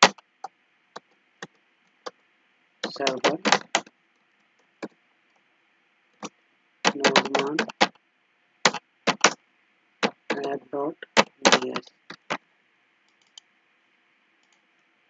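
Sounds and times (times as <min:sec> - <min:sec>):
faint steady hiss: 0:00.0 - 0:15.0
person speaking short words: 0:02.8 - 0:03.5, 0:06.9 - 0:07.7, 0:10.3 - 0:11.9
computer keyboard keystrokes: 0:02.8 - 0:03.9, 0:06.9 - 0:07.9, 0:08.7 - 0:09.4, 0:11.2 - 0:12.4, 0:13.1 - 0:13.4.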